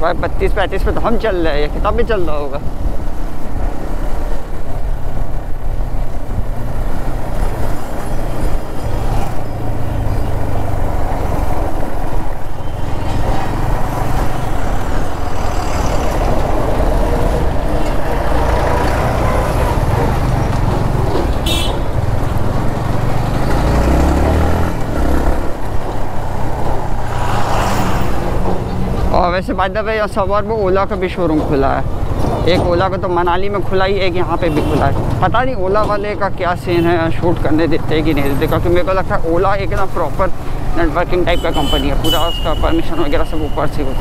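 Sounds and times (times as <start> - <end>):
motorcycle engine: 5.6 - 29.1.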